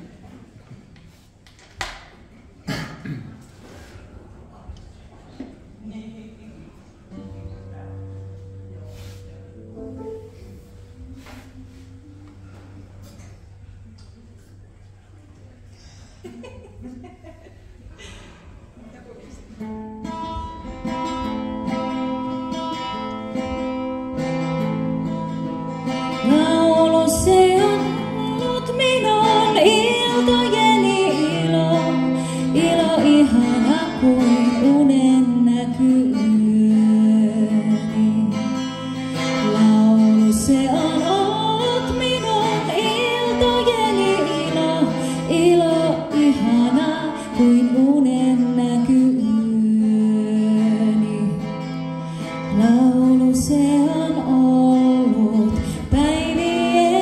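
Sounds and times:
guitar playing: 7.1s - 14.3s, 19.6s - 57.0s
held accompanying notes: 7.1s - 14.6s
woman singing: 25.9s - 51.7s, 52.4s - 57.0s.

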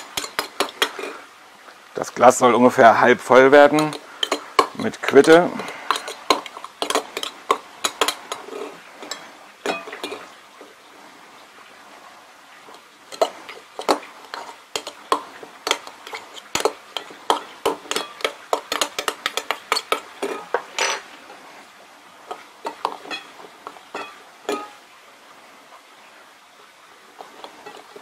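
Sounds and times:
utensil clinking against glass jar: 0.0s - 1.2s, 3.6s - 10.3s, 12.7s - 21.0s, 22.6s - 24.8s, 27.2s - 28.0s.

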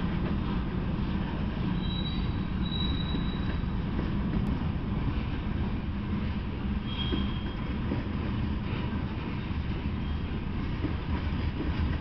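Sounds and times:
train wheels rumbling on rails: 0.0s - 12.0s
high-pitched wheel squeal: 1.8s - 3.7s, 6.8s - 7.6s.

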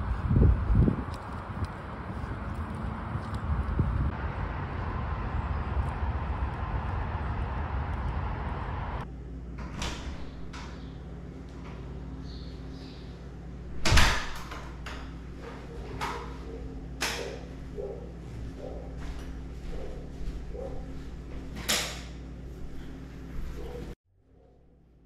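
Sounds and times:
outdoor wind noise: 0.0s - 25.0s
clicks and knocks of door: 13.8s - 15.1s.

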